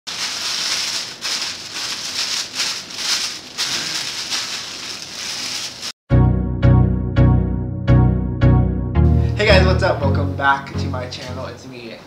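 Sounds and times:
tissue paper crinkling: 0:00.1 - 0:06.0.

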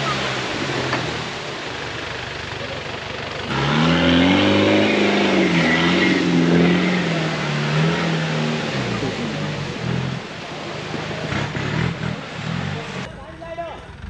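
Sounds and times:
rushing churned water: 0:00.0 - 0:13.1
engine revving hard: 0:03.4 - 0:10.4, 0:11.0 - 0:13.1.

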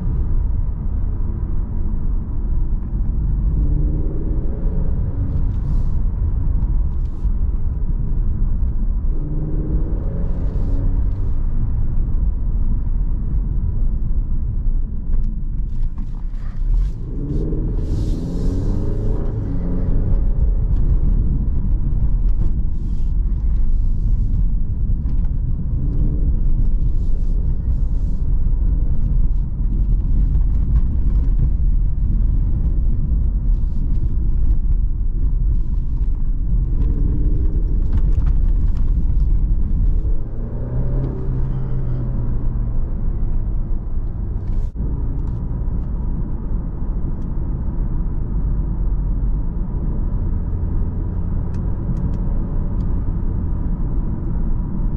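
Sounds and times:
car engine and road rumble: 0:00.0 - 0:54.9.

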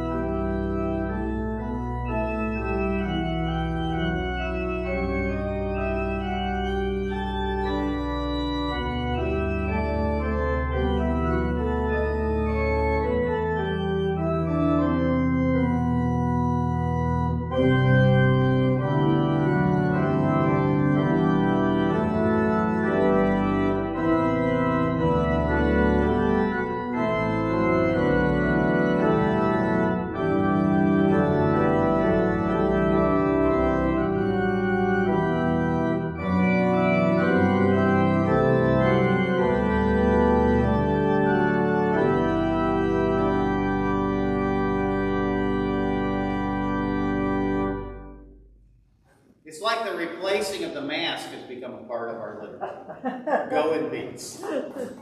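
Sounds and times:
organ playing held chords: 0:00.0 - 0:48.6, 0:49.5 - 0:55.0.

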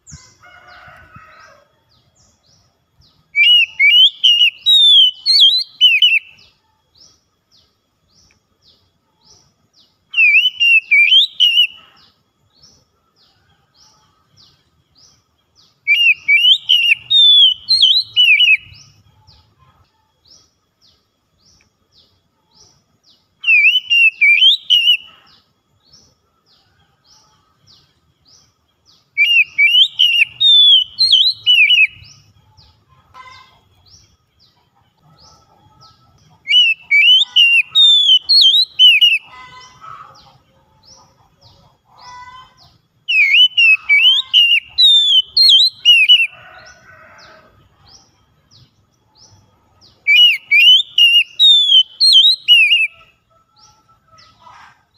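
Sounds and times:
bird singing whistled phrases: 0:03.4 - 0:06.5, 0:10.1 - 0:11.8, 0:15.9 - 0:18.8, 0:23.4 - 0:25.1, 0:29.2 - 0:32.1, 0:36.5 - 0:39.3, 0:43.1 - 0:46.4, 0:50.1 - 0:53.0.

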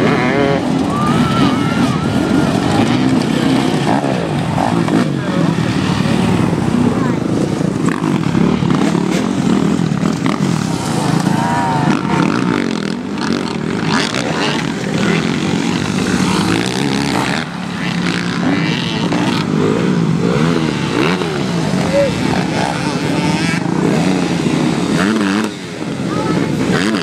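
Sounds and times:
dirt bike engines revving: 0:00.0 - 0:27.0.

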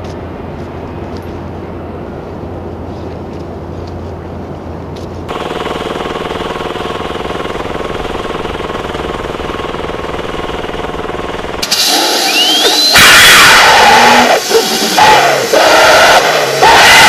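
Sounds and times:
small engine chugging: 0:05.3 - 0:17.0
short rising whistle: 0:11.6 - 0:16.2.

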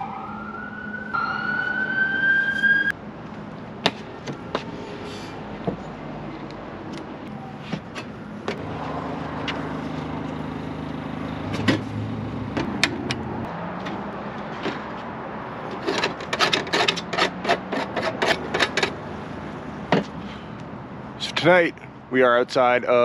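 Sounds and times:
vehicle engine running: 0:08.6 - 0:13.6
sharp clicks and knocks: 0:15.7 - 0:19.0.

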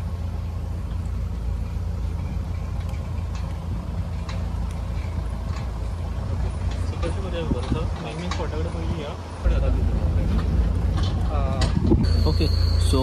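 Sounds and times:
vehicle engine droning: 0:00.0 - 0:13.0
light vehicle knocks: 0:02.2 - 0:09.2.

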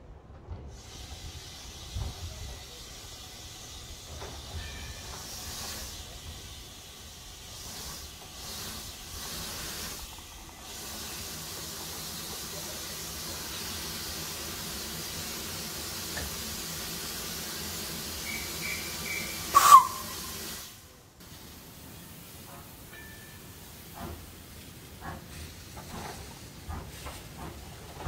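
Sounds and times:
steam locomotive hissing steam: 0:00.5 - 0:28.0
sharp steam burst: 0:00.7 - 0:22.9.

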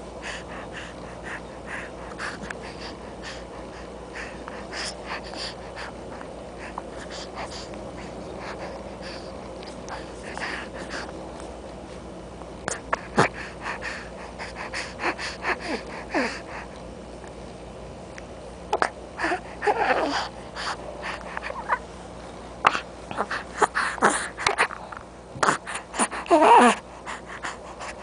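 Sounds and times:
baby grunting and crying: 0:18.8 - 0:20.3, 0:25.4 - 0:26.8.

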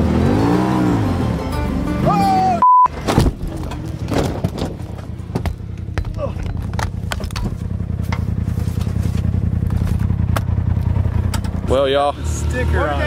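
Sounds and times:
engine revving: 0:00.0 - 0:02.5, 0:07.6 - 0:13.0
background music: 0:00.0 - 0:02.6
censor bleep: 0:02.6 - 0:02.9
knocks and clatter: 0:03.0 - 0:10.6, 0:11.2 - 0:11.6.

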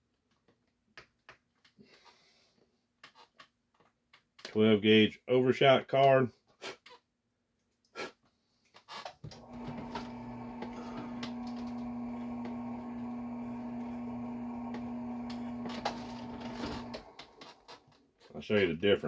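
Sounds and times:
drill press motor humming: 0:09.3 - 0:17.9.

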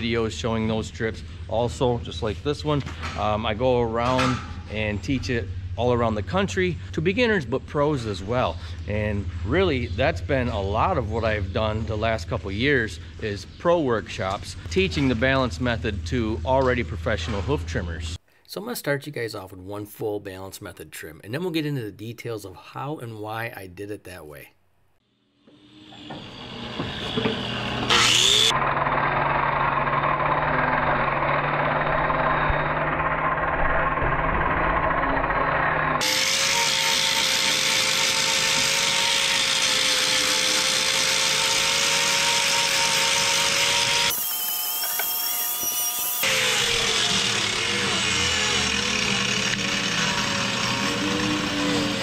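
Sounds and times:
angle grinder grinding horn: 0:25.5 - 0:52.0.

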